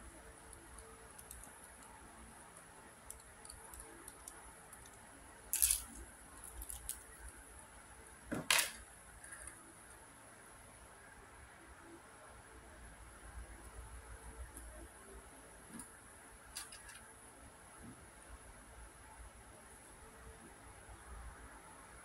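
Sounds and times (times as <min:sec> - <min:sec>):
plastic puzzle clack: 0:05.6 - 0:07.0.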